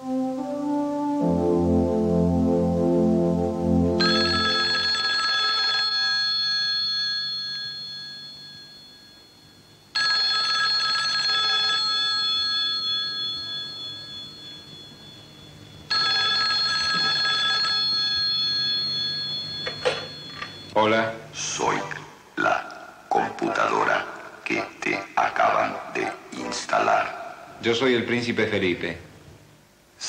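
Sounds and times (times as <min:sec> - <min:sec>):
telephone bell ringing: 0:04.0 - 0:20.8.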